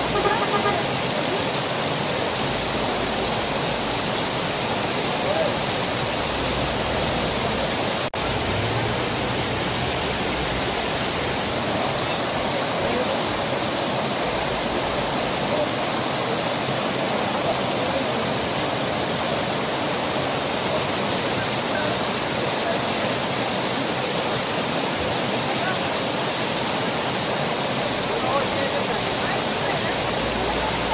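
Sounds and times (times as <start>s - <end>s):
stream rushing over rocks: 0.0s - 30.9s.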